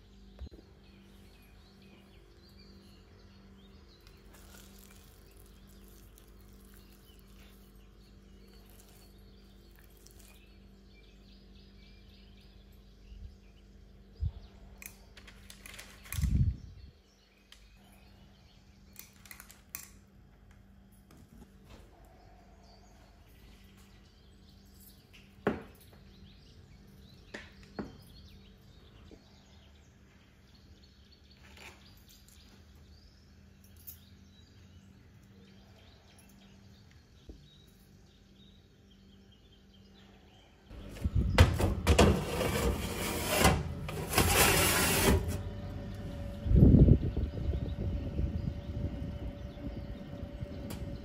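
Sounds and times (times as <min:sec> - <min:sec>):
oven fan hum: 0:36.7 - 0:51.0
baking tray scraping on oven rack: 0:40.8 - 0:46.3.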